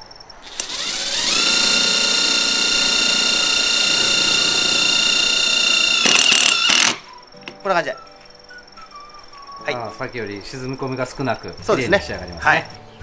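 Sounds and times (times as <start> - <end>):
impact driver whining: 0.4 - 7.1.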